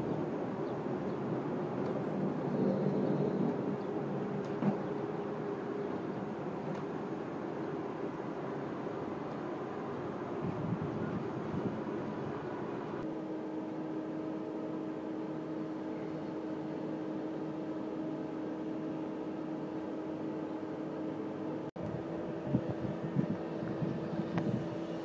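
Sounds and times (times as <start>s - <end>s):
electric locomotive hum: 0.0s - 25.0s
rolling train noise: 0.0s - 25.0s.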